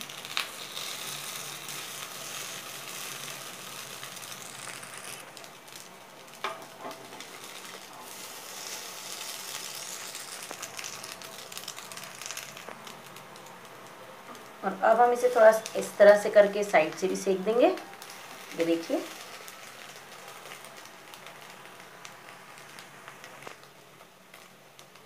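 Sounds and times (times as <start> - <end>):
oil sizzling in a pan: 0.0 - 25.0.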